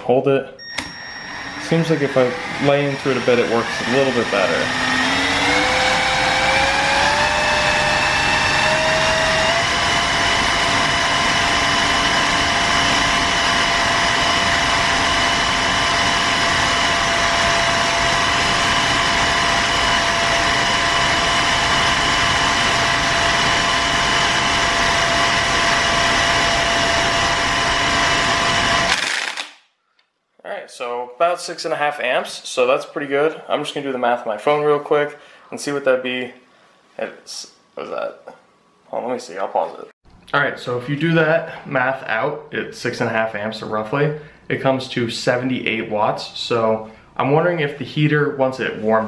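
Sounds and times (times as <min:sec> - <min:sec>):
power drill motor whine: 0:00.6 - 0:29.5.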